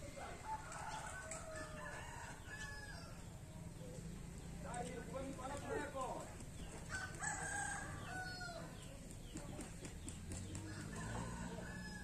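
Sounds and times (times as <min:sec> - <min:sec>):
rooster crowing: 0:00.3 - 0:03.2, 0:06.9 - 0:08.7, 0:10.7 - 0:12.0.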